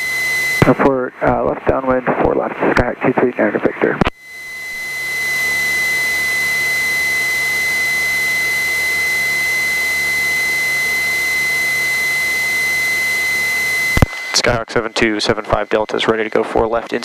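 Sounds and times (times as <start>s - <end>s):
radio static hiss: 0.6s - 4.1s, 13.9s - 17.0s
high-pitched electronic tone: 4.4s - 17.0s.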